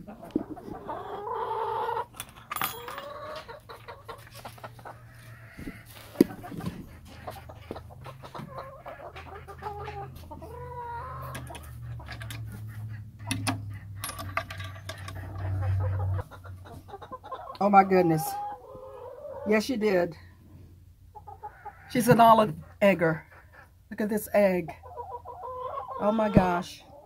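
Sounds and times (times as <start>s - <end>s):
hens clucking: 0.0s - 27.0s
knocks and shuffling: 2.0s - 10.6s, 11.2s - 17.0s.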